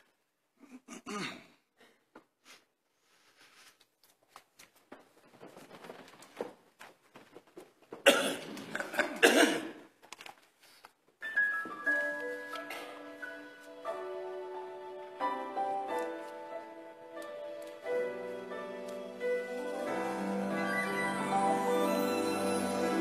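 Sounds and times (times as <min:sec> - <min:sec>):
person coughing: 0:00.6 - 0:02.0, 0:08.1 - 0:09.9
choir rustling and shuffling: 0:03.0 - 0:09.0, 0:10.6 - 0:23.0
sustained accompaniment notes: 0:12.0 - 0:23.0.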